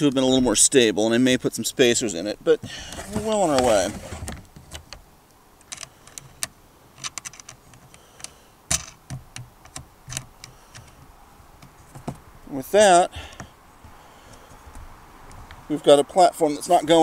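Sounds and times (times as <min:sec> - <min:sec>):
light clicks and taps of tools: 0:05.6 - 0:12.2.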